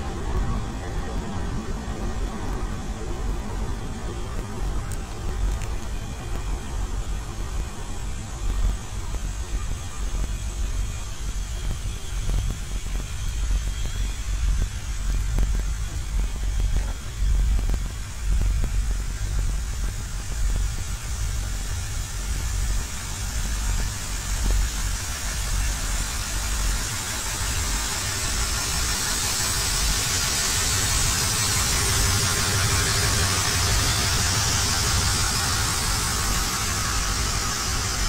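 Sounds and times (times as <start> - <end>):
steady hiss: 0.0 - 38.0
locomotive engines idling: 25.8 - 38.0.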